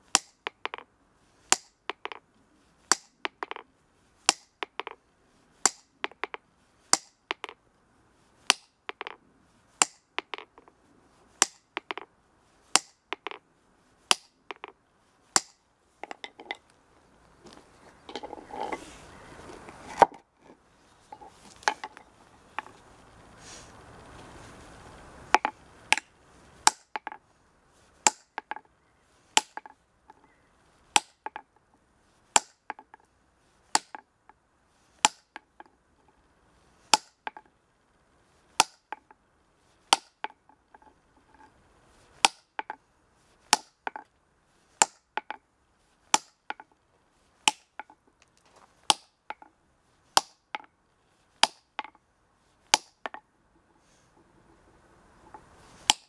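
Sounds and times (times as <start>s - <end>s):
hammer striking steel chisel: 0.0s - 0.8s, 1.5s - 2.2s, 2.9s - 3.6s, 4.3s - 5.0s, 5.6s - 7.6s, 8.5s - 9.2s, 9.8s - 10.6s, 11.4s - 12.1s, 12.7s - 13.4s, 14.1s - 14.8s, 15.4s - 16.6s, 25.3s - 27.2s, 28.0s - 28.6s, 29.4s - 30.2s, 31.0s - 31.4s, 32.4s - 32.8s, 35.0s - 35.4s, 36.9s - 37.4s, 38.6s - 39.0s, 39.9s - 40.4s, 42.2s - 42.7s, 43.5s - 44.0s, 46.1s - 46.7s, 47.5s - 47.9s, 48.9s - 49.4s, 50.2s - 50.7s, 51.4s - 52.0s, 52.7s - 53.2s
rough scraping: 10.4s - 26.7s.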